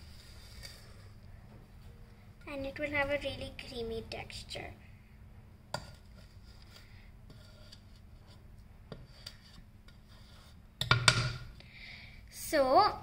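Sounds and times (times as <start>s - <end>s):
spatula scraping steel bowl: 5.8s - 10.6s.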